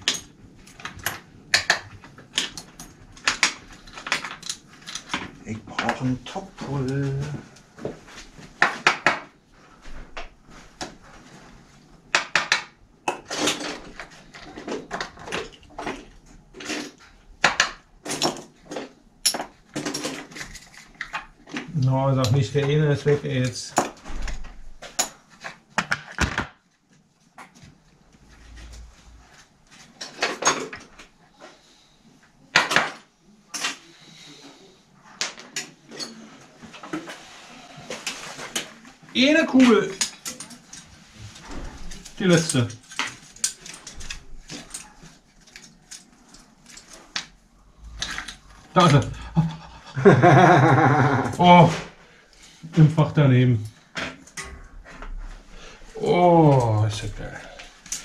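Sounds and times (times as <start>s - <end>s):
tools clicking and knocking: 0.0s - 6.0s, 12.1s - 22.4s.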